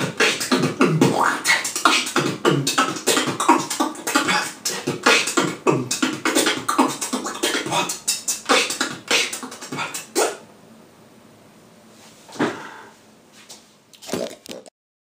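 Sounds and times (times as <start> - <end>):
beatboxing drum hits and clicks: 0.0 - 10.4
swooping beatbox bass sounds: 0.0 - 10.4.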